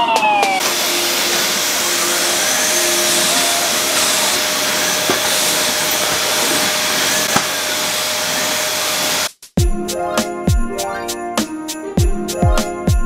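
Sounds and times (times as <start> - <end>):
vacuum cleaner running: 0.5 - 9.3.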